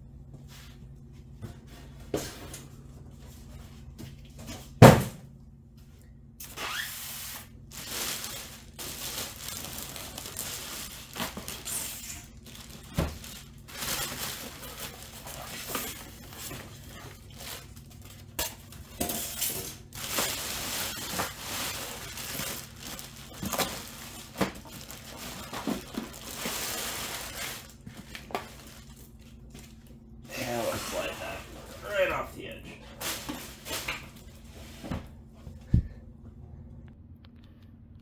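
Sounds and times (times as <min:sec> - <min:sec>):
plastic bag crinkling: 0:07.4 - 0:19.0, 0:19.7 - 0:34.3.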